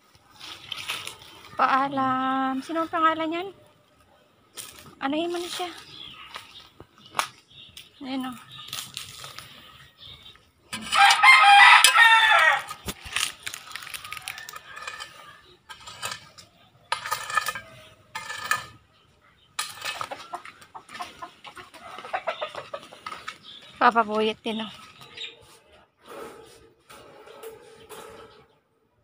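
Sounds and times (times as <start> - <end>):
chicken calls: 8.6 - 15.7, 18.8 - 23.8
rooster crowing: 10.9 - 12.8.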